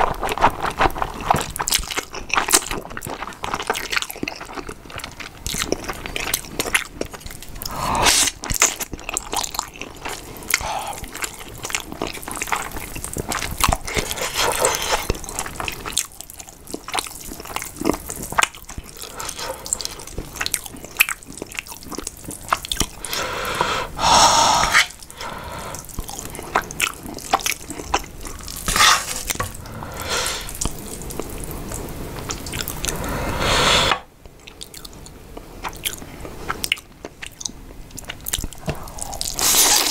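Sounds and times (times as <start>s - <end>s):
wet chewing of noodles: 0.0s - 39.9s
loud slurps: 23.0s - 26.0s, 28.4s - 30.9s, 32.4s - 34.1s, 39.2s - 39.9s.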